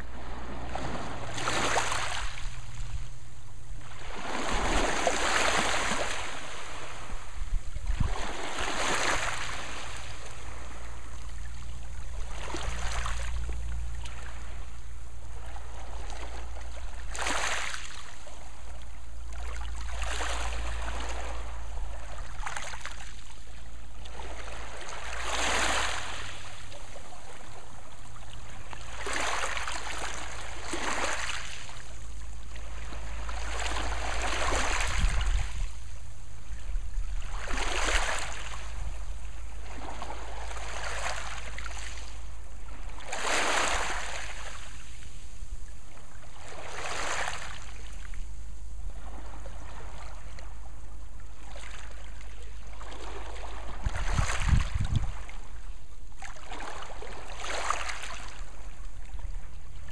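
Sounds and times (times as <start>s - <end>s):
waves washing over pebbles: 0.0s - 2.8s, 3.8s - 11.5s, 12.2s - 14.6s, 15.6s - 18.7s, 19.4s - 23.2s, 24.0s - 27.2s, 28.6s - 32.0s, 32.6s - 35.8s, 37.2s - 38.8s, 39.7s - 42.2s, 42.8s - 45.0s, 46.3s - 47.8s, 56.3s - 58.6s
steady low rumble: 0.0s - 25.4s, 26.0s - 43.2s, 47.6s - 56.3s.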